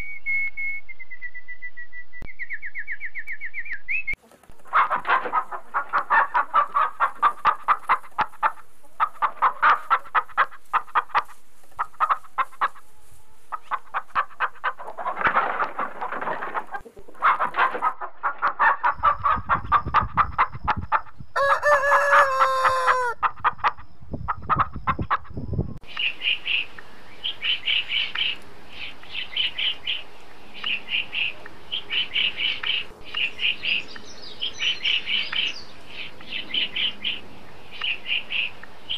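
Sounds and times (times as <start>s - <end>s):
bird chirping: 0.0s - 14.3s, 23.0s - 38.9s
chickens clucking: 4.1s - 26.6s
rooster crowing: 21.4s - 23.2s.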